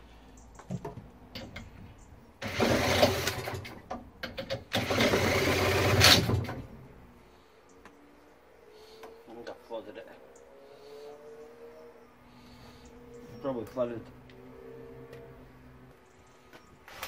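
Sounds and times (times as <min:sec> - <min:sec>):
cordless drill cranking engine: 0:02.4 - 0:03.8, 0:04.6 - 0:06.7.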